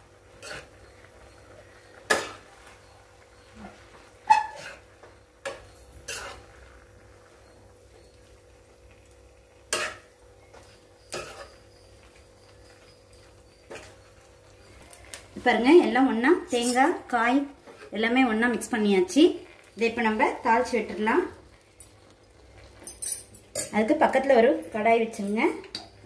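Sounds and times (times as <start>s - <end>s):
spoon scraping and clinking in pan: 0.4s - 0.8s, 4.3s - 6.6s, 9.7s - 14.1s, 16.5s - 17.1s, 21.8s - 23.8s.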